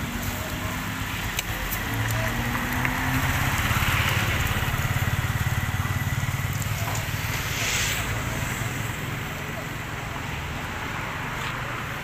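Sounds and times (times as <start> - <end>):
small engine idling: 3.2 - 7.5
hiss: 6.9 - 9.3.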